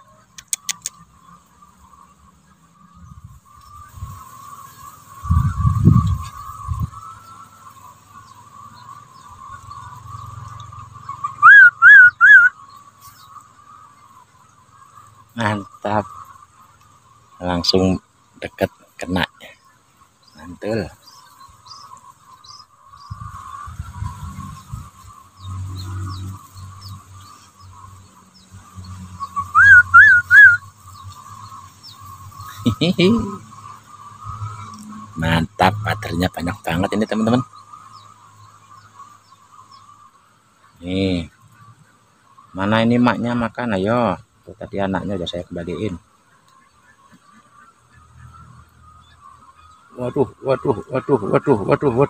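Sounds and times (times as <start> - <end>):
person whistling short notes: 11.4 - 12.5, 29.5 - 30.6.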